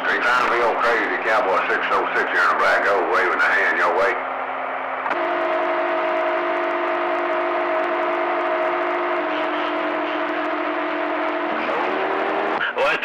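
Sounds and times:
radio carrier tone: 0.0 - 4.2, 5.1 - 13.0
radio static hiss: 0.0 - 4.2, 7.1 - 11.6, 12.5 - 13.0.

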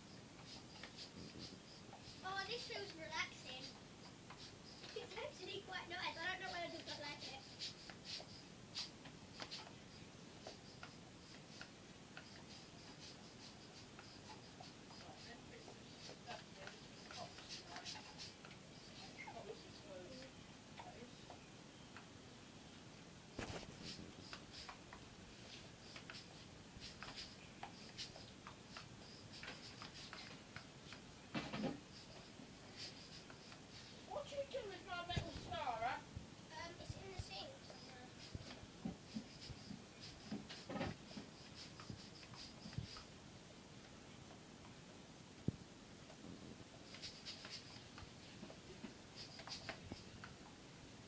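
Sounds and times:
dog sniffing: 0.4 - 20.0, 25.4 - 30.3, 31.8 - 35.9
faint clicks and taps: 34.4 - 35.6.

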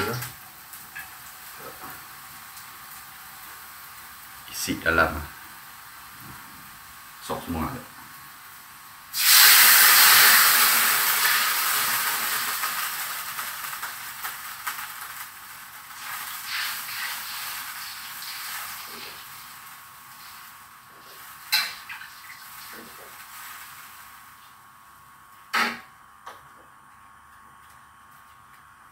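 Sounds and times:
food sizzling in hot oil: 0.0 - 4.6, 8.2 - 24.8.

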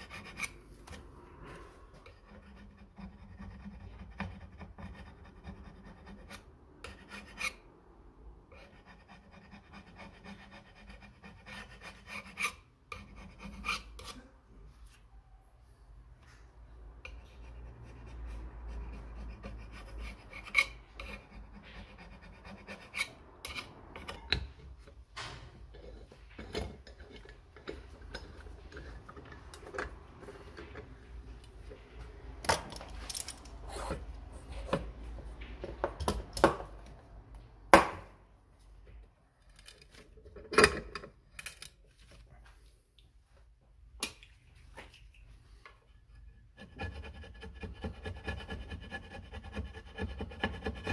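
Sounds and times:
metal scraper scraping gasket: 18.8 - 24.3.

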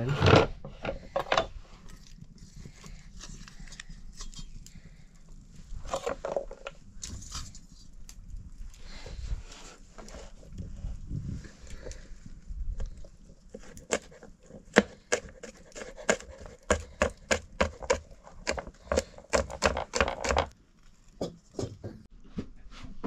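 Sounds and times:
knife chopping on wooden board: 13.8 - 20.5.

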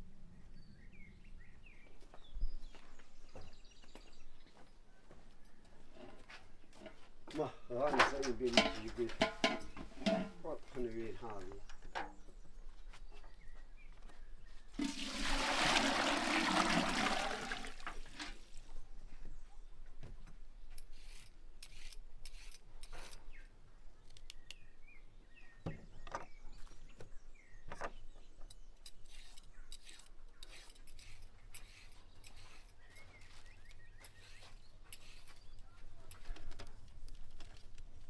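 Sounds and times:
water poured into metal pot: 14.8 - 18.4
peeler scraping a carrot: 20.7 - 23.5, 28.8 - 35.6.

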